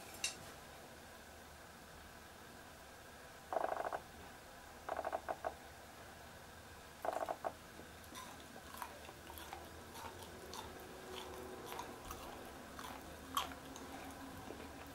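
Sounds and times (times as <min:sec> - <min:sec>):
chewy eating sounds: 0:07.2 - 0:14.9.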